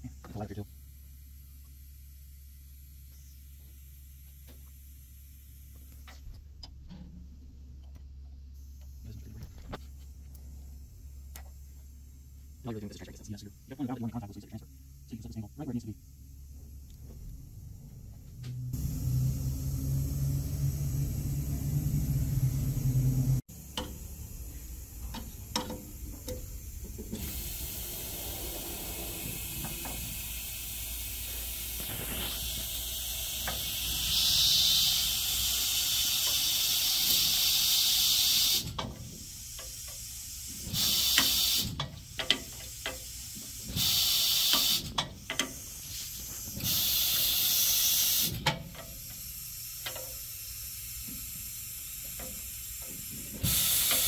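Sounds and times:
low steady hum: 0.0s - 33.8s
compressed air hissing: 13.4s - 54.0s
tooling clicks and knocks: 25.0s - 27.2s.

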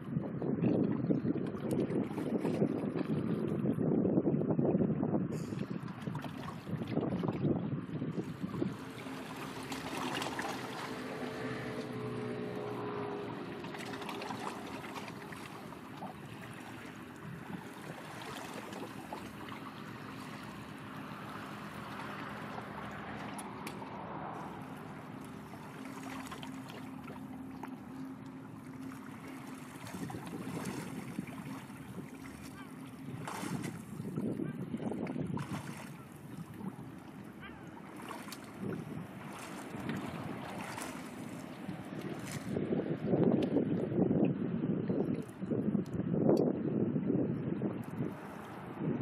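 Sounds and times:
wind: 0.0s - 49.0s
water splashing: 0.8s - 3.6s, 5.4s - 42.7s
distant ship engine drone: 7.6s - 43.6s.

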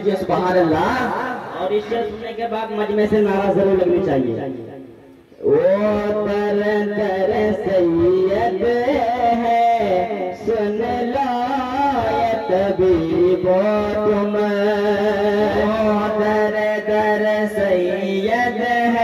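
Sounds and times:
men singing devotional verse: 5.5s - 19.0s.

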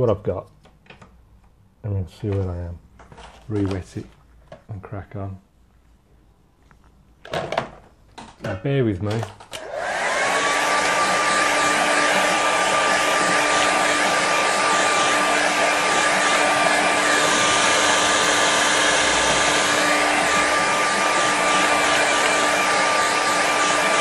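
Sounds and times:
hair dryer whining: 9.5s - 24.0s.

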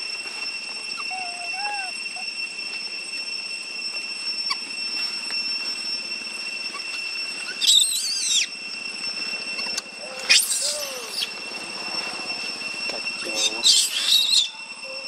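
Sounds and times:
high-pitched drone: 0.0s - 15.0s
monkey screaming: 0.9s - 2.4s, 6.7s - 8.6s, 9.6s - 11.4s, 13.2s - 15.0s.

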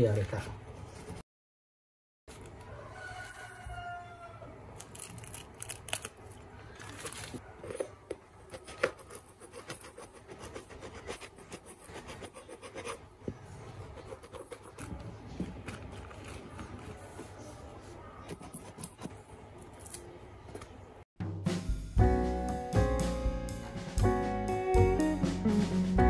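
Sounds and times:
spoon scraping paint: 7.6s - 13.0s, 13.6s - 19.2s.

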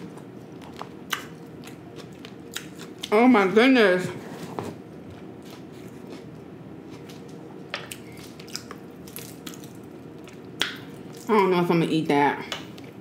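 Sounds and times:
chewing with wet squishes: 0.2s - 3.1s, 5.1s - 11.3s
crispy fish crackling and snapping: 8.0s - 11.4s.

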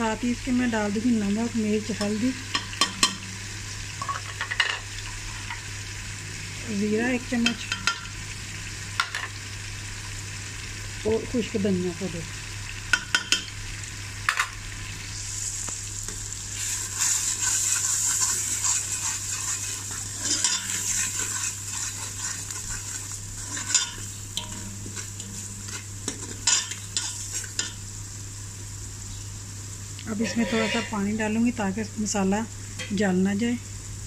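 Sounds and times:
spices sizzling in hot fat: 0.0s - 34.0s
metal spoon scraping a pot: 17.0s - 27.7s, 30.2s - 31.0s.

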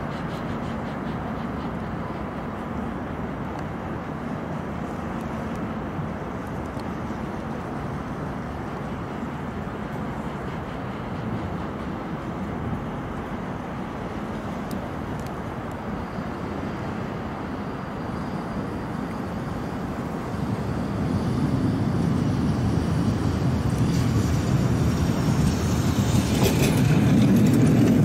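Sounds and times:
tram running on rails: 0.0s - 28.0s.

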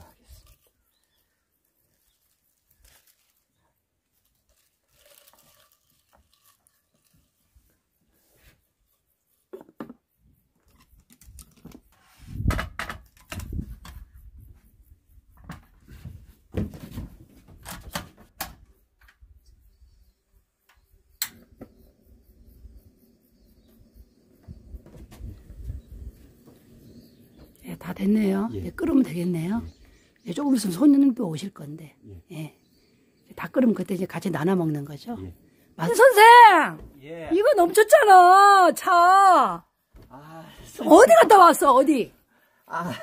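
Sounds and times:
leaves rustling: 0.0s - 7.8s.

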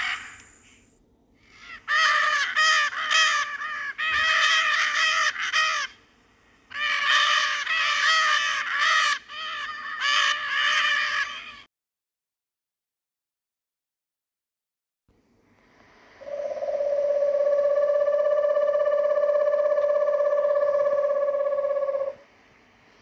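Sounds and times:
parrot squawking: 16.4s - 22.2s.

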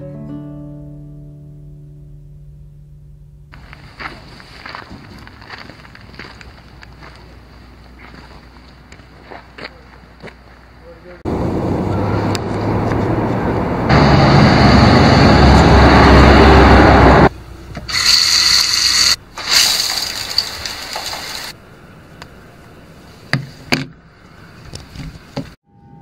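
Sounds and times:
vehicle passing rumble: 3.5s - 17.8s
shower head spraying water: 17.9s - 21.5s.

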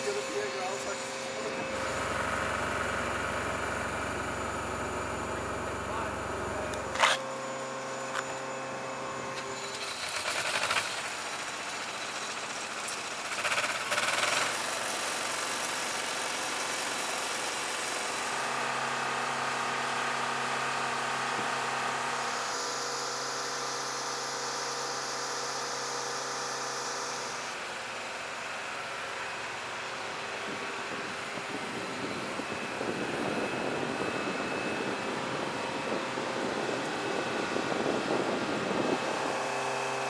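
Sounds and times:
motorized equipment humming: 0.0s - 13.7s, 14.4s - 40.0s
short rattling bursts: 9.5s - 15.5s.

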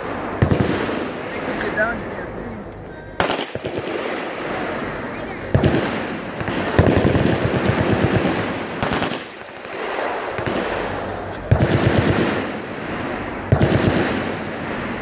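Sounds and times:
machine guns firing bursts: 0.0s - 1.6s, 3.2s - 15.0s.

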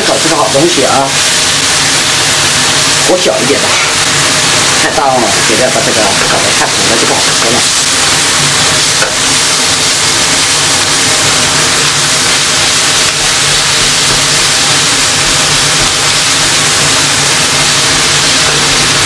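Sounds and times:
peppers sizzling in oil: 0.0s - 19.0s
spatula stirring in wok: 6.2s - 19.0s.

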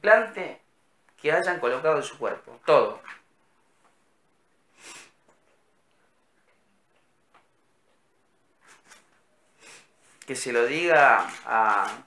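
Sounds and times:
faint brief hissing: 4.7s - 5.2s.

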